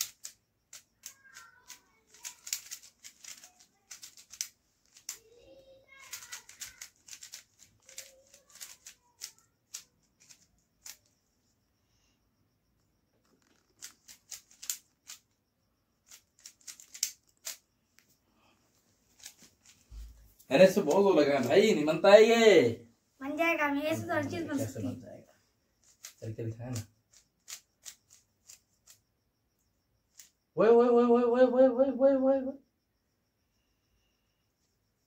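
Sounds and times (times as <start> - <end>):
plastic puzzle cube clicking: 0.0 - 5.2, 6.1 - 11.1, 13.2 - 15.4, 16.0 - 17.6, 25.8 - 29.0, 30.1 - 30.4.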